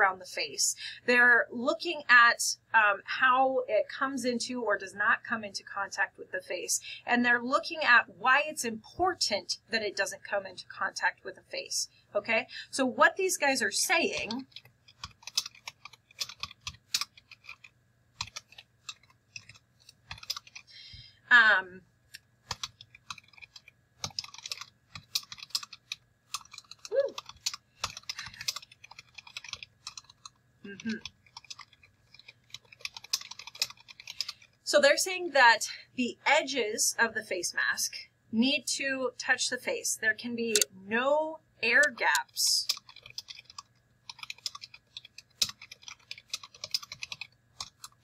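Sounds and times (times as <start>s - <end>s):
keyboard typing: 14.1s - 20.7s, 22.4s - 34.6s, 41.8s - 48.0s.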